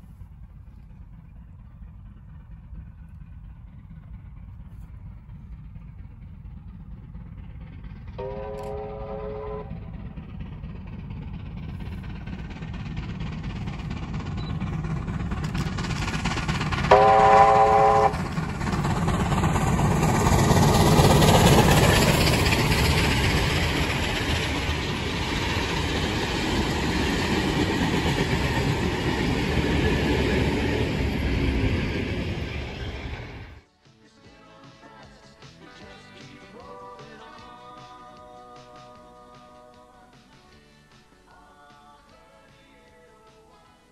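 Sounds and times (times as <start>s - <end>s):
steam locomotive rumbling: 0.0s - 33.7s
steam whistle blast: 8.2s - 9.8s, 16.9s - 18.2s.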